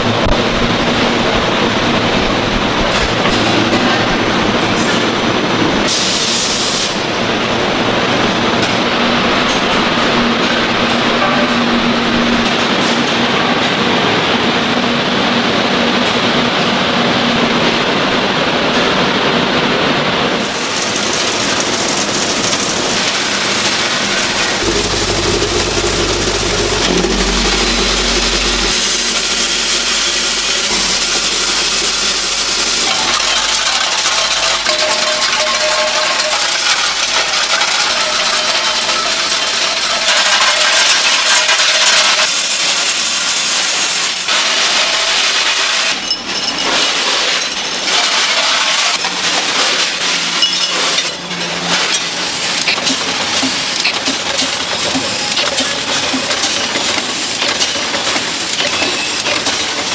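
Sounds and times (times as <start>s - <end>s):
factory machinery running: 0.0s - 59.9s
small hard pieces clinking on metal: 30.8s - 42.3s.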